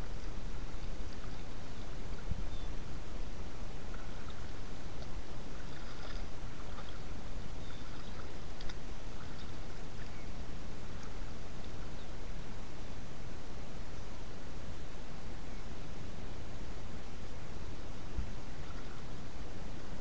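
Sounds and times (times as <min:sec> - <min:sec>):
low outdoor rumble: 0:00.0 - 0:20.0
small splashes: 0:03.9 - 0:10.2
faint ticks: 0:07.9 - 0:10.2.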